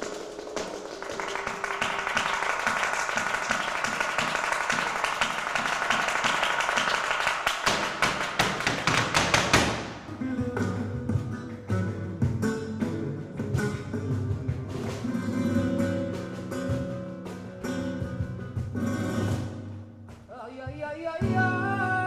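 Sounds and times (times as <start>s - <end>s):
people clapping hands in rhythm: 0.0s - 10.1s, 11.2s - 17.8s.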